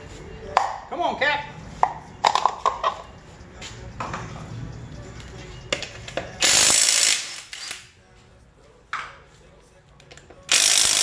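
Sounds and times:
impact wrench hammering: 6.4s - 7.8s, 10.5s - 11.0s.

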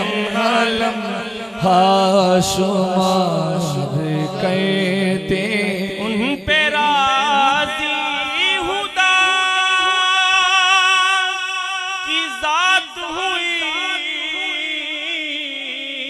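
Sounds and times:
man singing into a microphone: 0.0s - 16.0s.

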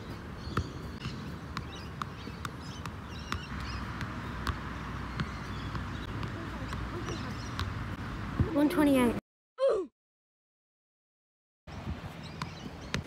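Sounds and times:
birds chirping: 0.0s - 9.2s, 11.7s - 13.0s
ball tapping off foot: 0.6s - 8.6s.

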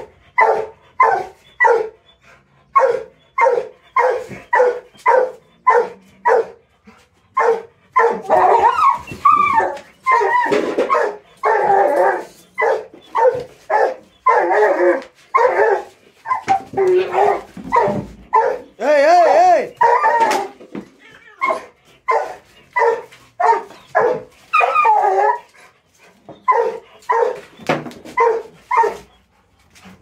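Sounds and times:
dog barking: 0.0s - 1.9s, 2.8s - 6.6s, 7.4s - 8.8s, 10.9s - 11.8s, 12.6s - 14.7s, 15.4s - 18.7s, 21.4s - 24.7s, 26.5s - 27.4s, 28.2s - 29.0s
dog whining: 7.4s - 25.6s, 26.2s - 29.3s.

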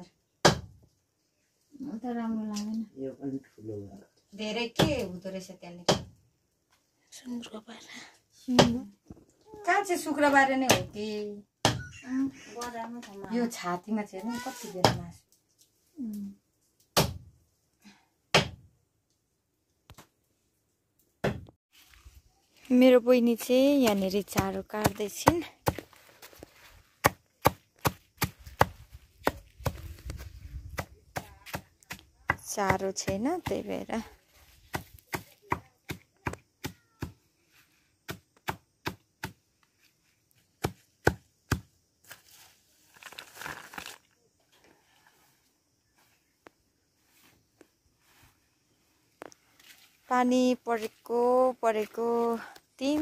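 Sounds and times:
hand scooping up leaves: 21.7s - 24.1s, 25.8s - 27.0s, 42.0s - 46.3s, 47.0s - 51.1s
knife chopping leaves: 23.8s - 26.0s, 27.0s - 29.9s, 34.6s - 37.1s.

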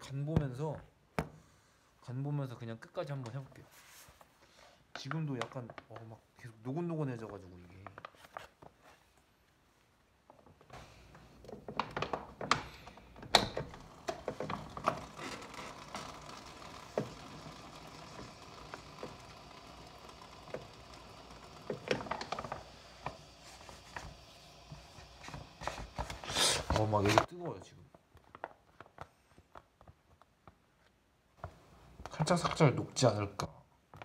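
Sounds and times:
water running from tap: 12.1s - 27.0s.

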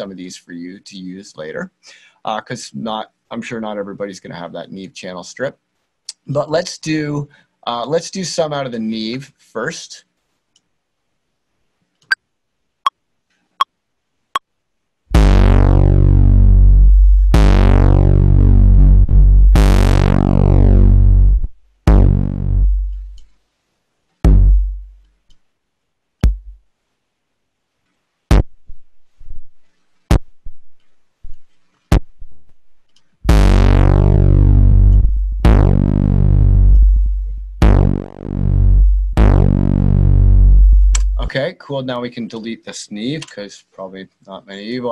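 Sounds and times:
distorted deep bass notes: 15.1s - 23.2s, 24.2s - 25.1s, 26.2s - 26.6s, 33.2s - 41.3s.

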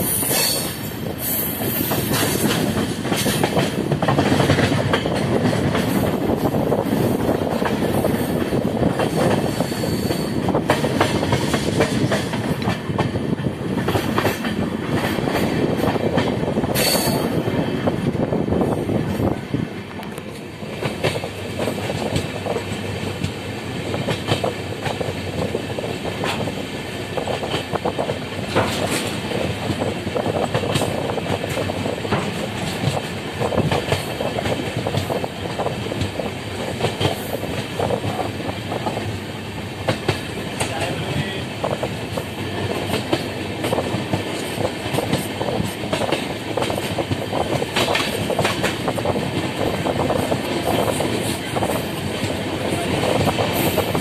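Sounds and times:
train wheels rumbling on rails: 0.0s - 54.0s
track clicks and clatter: 1.9s - 9.5s, 18.1s - 39.2s, 39.8s - 54.0s.

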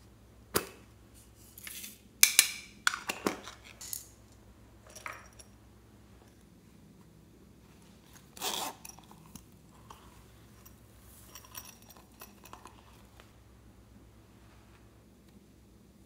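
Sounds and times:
pouch zipper opening: 8.1s - 9.3s.

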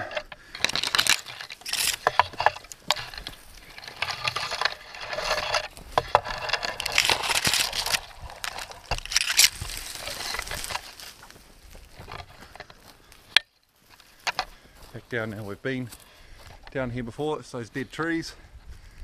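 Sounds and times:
leaves rustling: 0.0s - 13.2s
twigs crackling and snapping: 0.0s - 16.8s
footfalls on dry ground: 0.0s - 19.0s.

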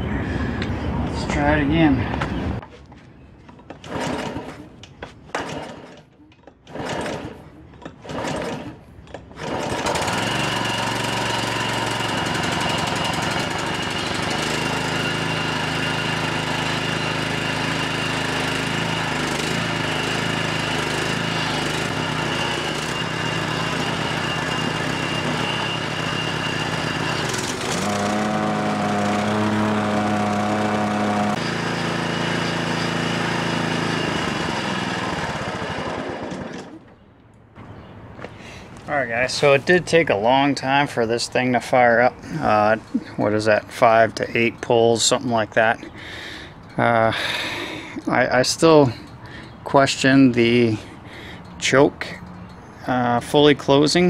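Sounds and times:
lawn mower engine running: 3.5s - 37.0s, 37.6s - 54.0s
recoil starter pulls: 3.5s - 37.0s.

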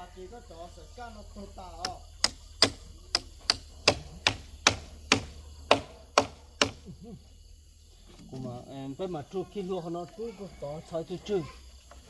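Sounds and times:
hammer driving nail into wood: 1.8s - 6.8s.

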